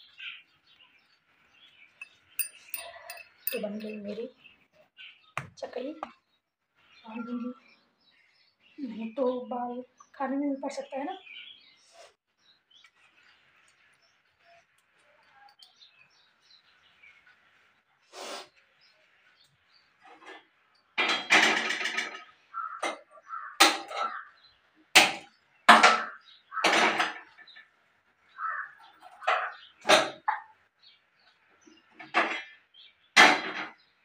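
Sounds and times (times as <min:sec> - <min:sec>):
steel utensils clattering: 0:02.0 - 0:04.2.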